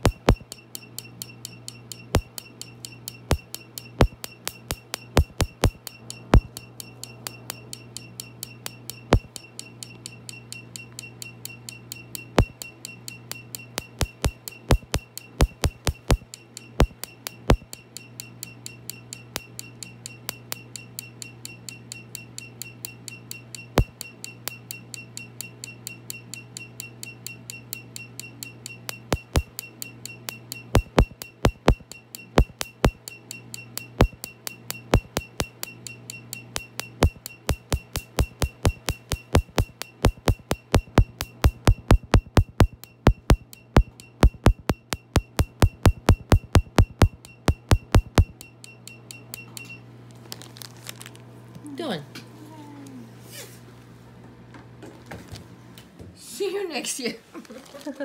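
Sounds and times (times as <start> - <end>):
high beeps: 0.0 - 0.5, 3.3 - 7.7, 13.7 - 16.2, 28.9 - 29.6, 30.3 - 33.0, 33.8 - 35.6, 36.6 - 48.5
steady low hum: 0.0 - 21.3, 27.5 - 50.1.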